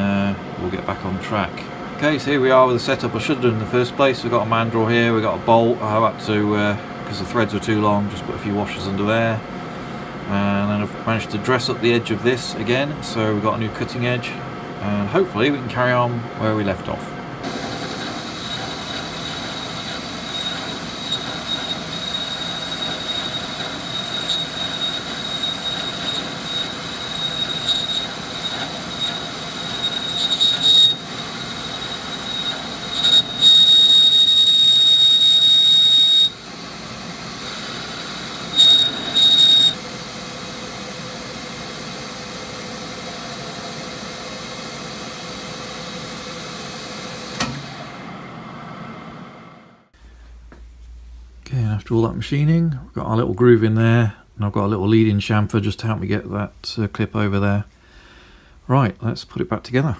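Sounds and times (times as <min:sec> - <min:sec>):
metal lathe cutting squeal: 0:17.4 - 0:47.3.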